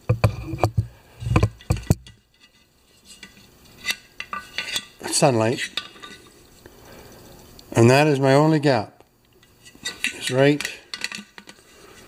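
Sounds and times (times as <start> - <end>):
metal gas tank clicking and knocking: 0.0 - 2.2.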